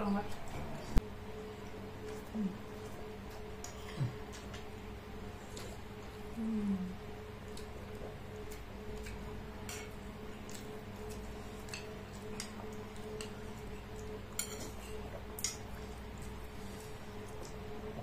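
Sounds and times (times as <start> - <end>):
steady low hum: 0.0 - 18.0
metal spoons clinking on ceramic plates: 14.3 - 15.7.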